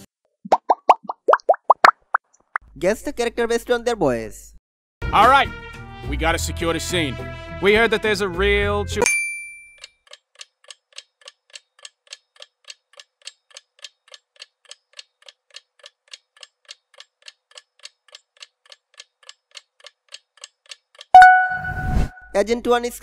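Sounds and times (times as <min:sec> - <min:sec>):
clock ticking: 0:10.0 - 0:21.6.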